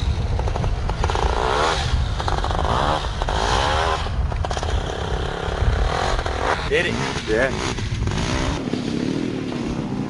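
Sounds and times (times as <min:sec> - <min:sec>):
quad bike engine revving: 0:00.0 - 0:10.0.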